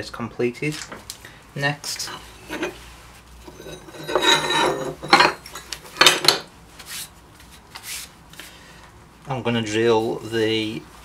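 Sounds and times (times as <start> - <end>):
metal plates scraping: 2.4 - 2.8, 3.4 - 6.2
metal plates clanking: 3.5 - 6.2.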